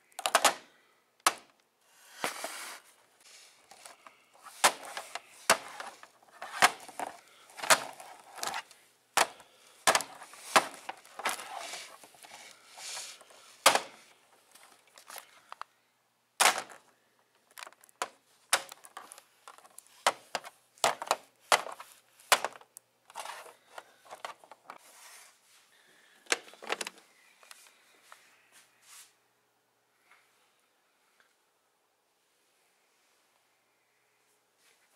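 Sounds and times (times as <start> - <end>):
plastic toy figures clacking: 0.1 - 0.6, 3.7 - 14.0, 16.4 - 24.8.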